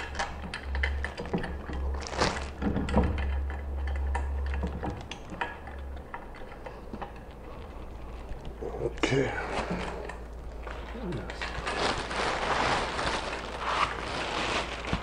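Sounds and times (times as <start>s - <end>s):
low steady hum: 0.0s - 15.0s
plastic wrap rustling: 1.1s - 3.3s, 6.4s - 15.0s.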